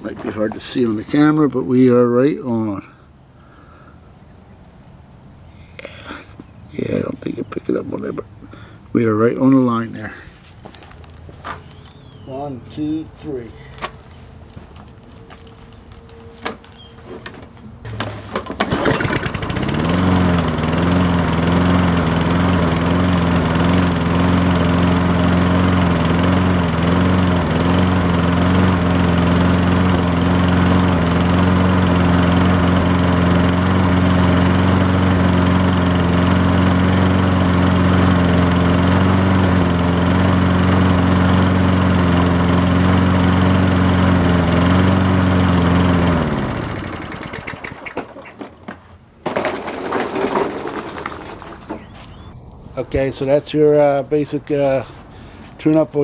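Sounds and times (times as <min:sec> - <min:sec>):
lawn mower engine running: 0:13.8 - 0:52.4.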